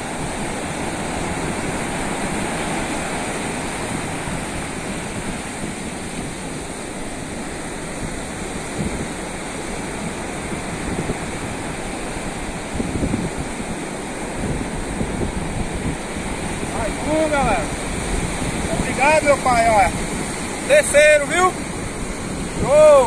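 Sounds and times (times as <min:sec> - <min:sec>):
ocean surf breaking: 0:00.0 - 0:23.0
wind buffeting microphone: 0:00.0 - 0:23.0.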